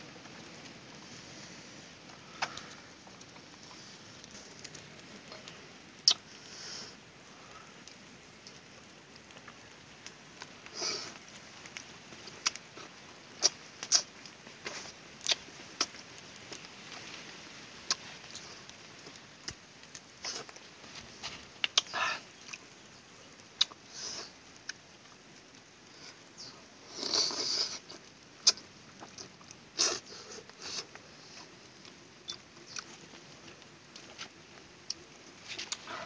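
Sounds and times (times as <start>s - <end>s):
chewing and lip-smacking: 23.6s - 23.8s, 28.4s - 33.0s.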